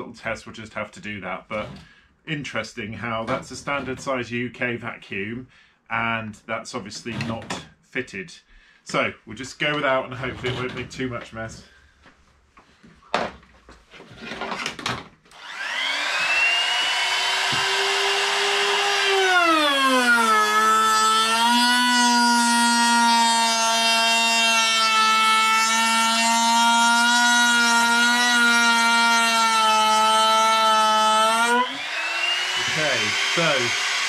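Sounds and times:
router whining: 15.3s - 34.0s.

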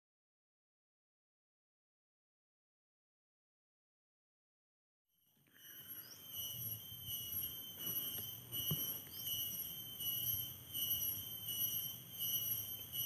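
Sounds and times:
insects shrilling: 5.6s - 13.0s.

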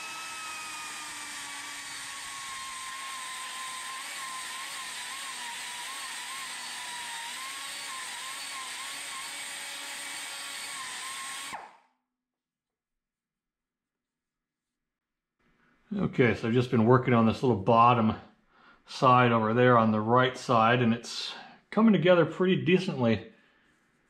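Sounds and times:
die grinder whining: 0.0s - 11.8s.

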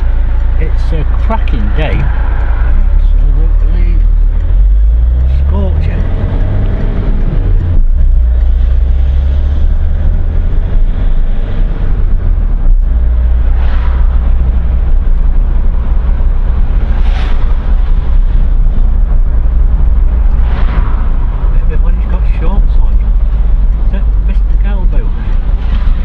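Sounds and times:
car engine and road noise: 0.0s - 26.0s.

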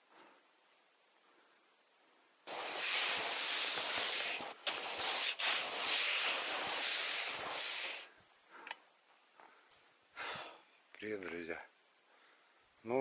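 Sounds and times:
faint small sounds: 0.0s - 13.0s
footsteps crunching snow: 2.5s - 8.1s.

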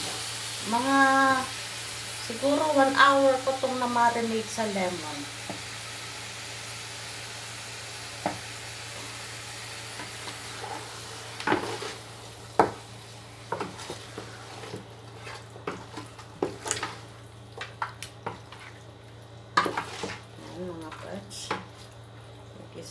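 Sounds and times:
chicken sizzling in a pot: 0.0s - 22.7s
spatula knocking and scraping pot: 13.5s - 17.0s, 19.6s - 20.2s.

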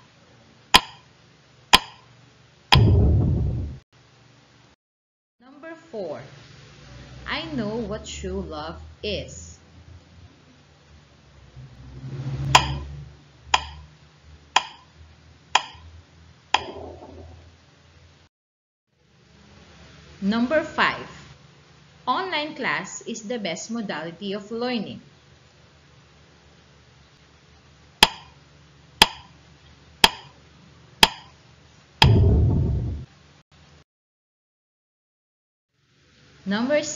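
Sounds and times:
sharp wooden ticks: 0.8s - 1.0s, 1.7s - 2.0s, 13.6s - 13.8s, 14.6s - 14.8s, 15.6s - 15.8s, 29.0s - 29.3s, 31.0s - 31.3s
loud low buzz: 2.7s - 3.8s, 9.7s - 13.6s, 32.0s - 33.2s
timer ticks with ringing tail: 12.6s - 12.8s, 13.6s - 13.8s, 14.6s - 14.9s, 15.6s - 15.9s.

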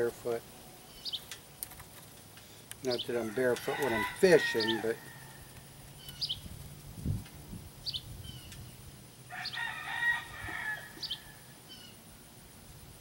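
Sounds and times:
high bird chirps: 0.9s - 1.3s, 5.9s - 6.5s, 7.8s - 8.8s, 11.0s - 12.0s
rooster crowing: 3.2s - 5.8s, 9.3s - 11.9s.

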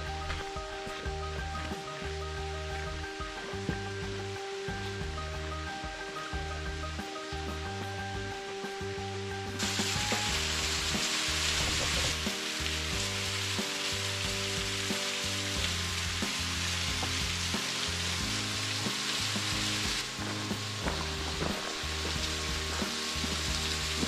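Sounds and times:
background music low notes: 0.0s - 24.0s
waterfall splashing on rock: 9.6s - 24.0s.

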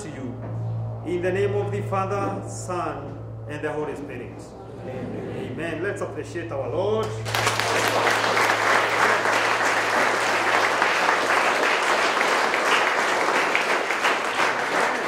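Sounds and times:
people applauding: 7.2s - 15.0s.

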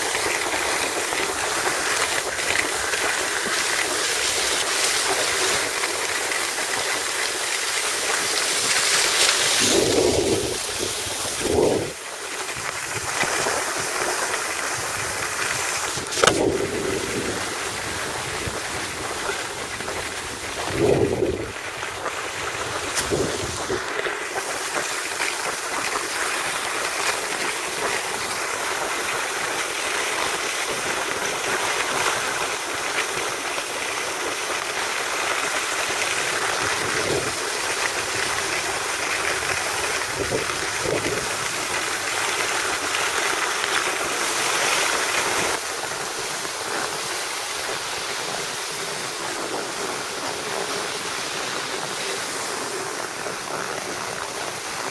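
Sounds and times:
skis hissing over snow: 0.0s - 54.9s
air rushing past microphone: 9.5s - 12.0s, 15.5s - 18.9s, 20.3s - 21.7s, 22.5s - 23.9s.

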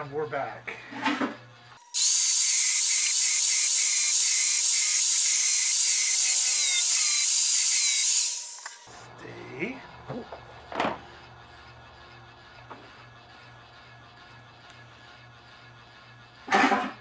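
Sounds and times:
angle grinder grinding metal: 0.0s - 10.4s.

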